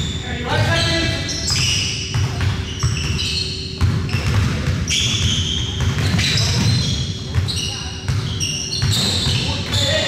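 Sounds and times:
shoe squeaks: 0:00.0 - 0:10.0
basketball bouncing on hardwood: 0:03.8 - 0:09.8
players' voices: 0:06.2 - 0:10.0.

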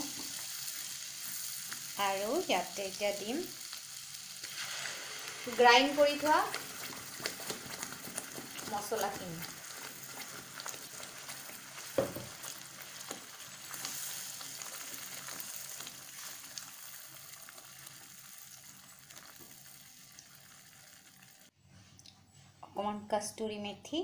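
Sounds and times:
paste sizzling in butter: 0:00.0 - 0:21.5
spatula stirring in pan: 0:03.6 - 0:19.8.

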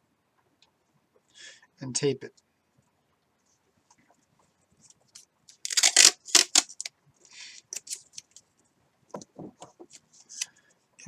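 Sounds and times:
masking tape ripping: 0:05.5 - 0:06.9.

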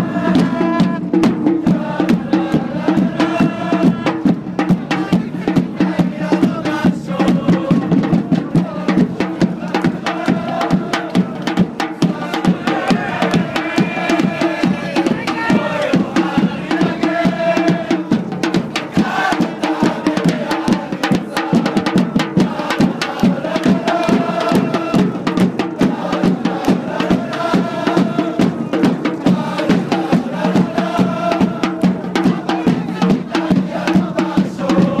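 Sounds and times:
steady drumbeat: 0:00.0 - 0:35.0
supporters chanting in unison: 0:00.0 - 0:35.0
rhythmic hand-clapping: 0:19.0 - 0:35.0.

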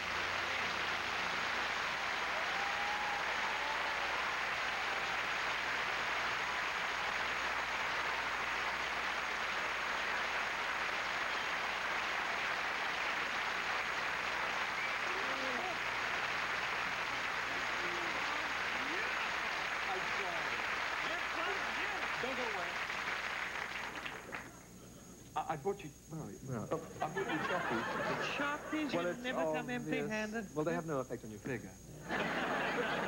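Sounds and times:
audience applauding: 0:00.0 - 0:24.8, 0:32.1 - 0:33.0
faint voices: 0:14.8 - 0:16.0, 0:17.4 - 0:22.4.

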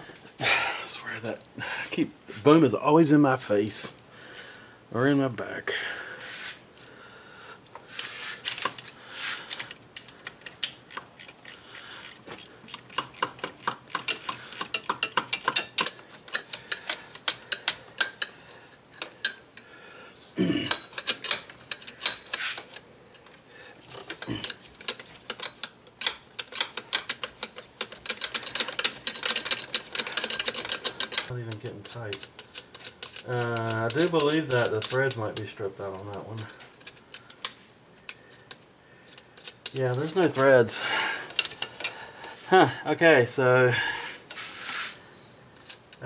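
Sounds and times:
ratchet wrench clicking: 0:08.4 - 0:18.3, 0:24.4 - 0:35.5.

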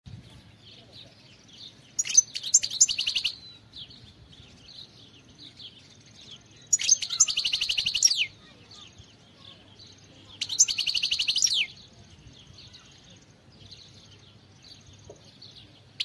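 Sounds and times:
goldfinch twittering trills: 0:05.6 - 0:09.6.

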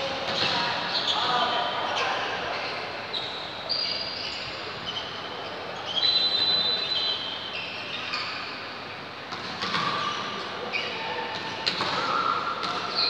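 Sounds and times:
sports hall hum: 0:00.0 - 0:13.0
shoes squeaking on court floor: 0:00.2 - 0:13.0.

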